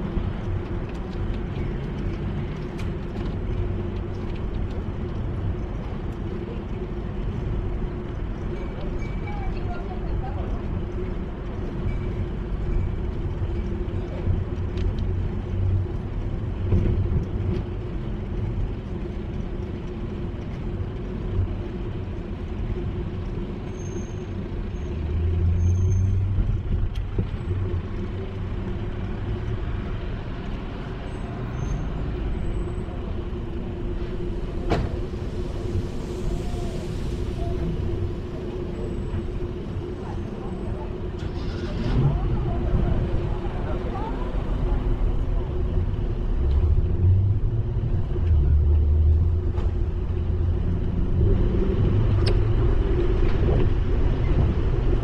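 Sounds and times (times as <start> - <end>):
wind rumbling on microphone: 31.9 - 55.0.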